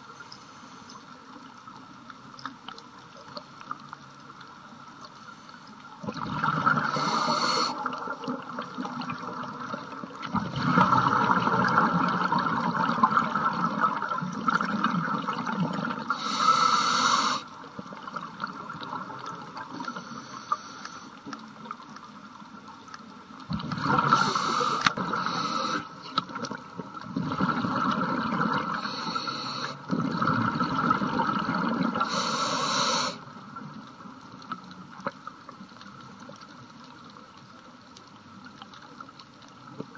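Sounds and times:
diver's exhaled bubbles: 6.0 - 7.7, 10.3 - 13.8, 23.5 - 25.2, 29.9 - 32.2.

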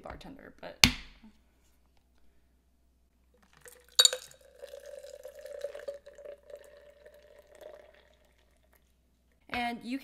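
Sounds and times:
liquid pouring into a glass: 3.4 - 9.0.

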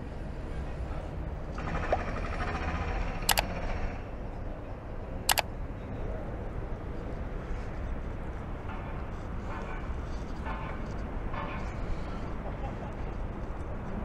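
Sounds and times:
outdoor city noise: 0.0 - 14.0
mouse double click effects: 3.3 - 3.5, 5.3 - 5.5.

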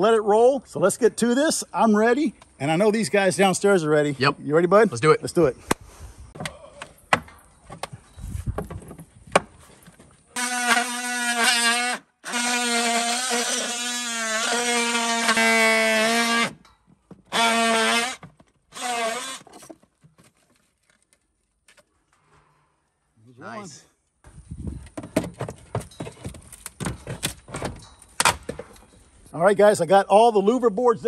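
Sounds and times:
multi-tool cutting wood: 10.3 - 19.8.

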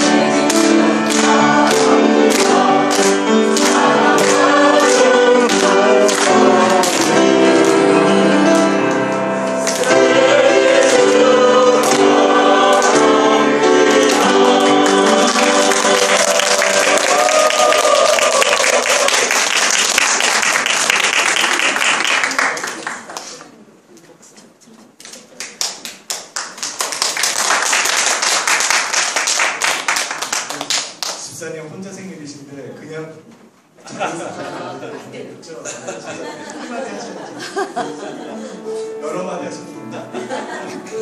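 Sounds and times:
hand-clapping on the beat: 0.0 - 7.8, 11.8 - 13.2, 13.9 - 23.3, 25.4 - 31.2
group singing: 0.0 - 19.3
applause: 14.1 - 23.5, 25.4 - 31.3.

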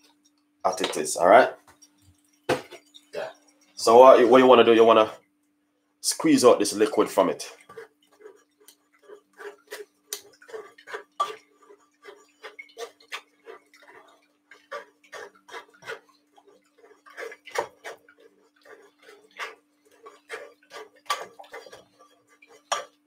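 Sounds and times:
spoon scraping metal strainer: 7.6 - 23.0.

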